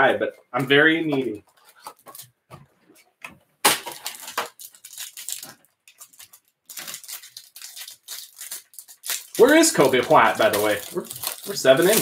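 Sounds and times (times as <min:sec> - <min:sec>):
plastic wrapper crinkling and tearing: 0:01.2 - 0:02.4, 0:03.6 - 0:12.0.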